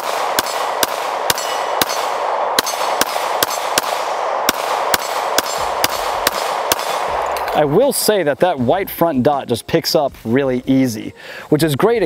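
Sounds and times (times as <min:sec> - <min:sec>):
pistol shots: 0:00.0 - 0:07.6
bullets clanging on steel targets: 0:00.0 - 0:07.7.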